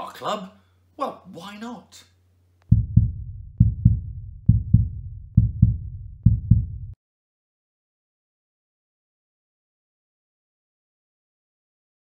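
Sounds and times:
heartbeat double thumps: 0:02.7 - 0:07.0.

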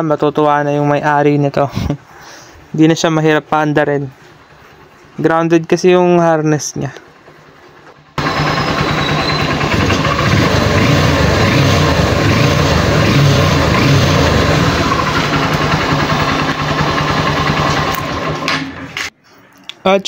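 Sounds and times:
motorcycle engine running: 0:07.1 - 0:19.1.

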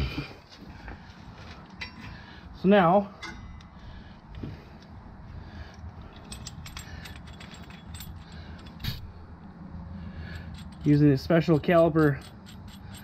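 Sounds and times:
light metallic clicks and clinks: 0:01.7 - 0:02.3, 0:05.7 - 0:09.1, 0:10.2 - 0:13.0.

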